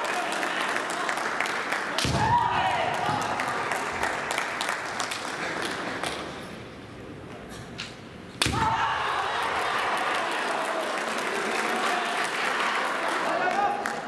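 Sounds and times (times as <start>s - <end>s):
crowd applauding: 0.0s - 6.4s, 9.1s - 14.0s.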